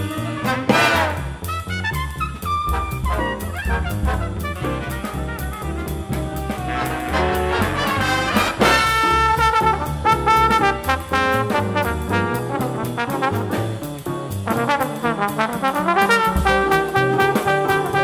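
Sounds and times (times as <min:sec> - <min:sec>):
jazz big band playing: 0:00.0 - 0:18.0
trombone solo: 0:00.0 - 0:18.0.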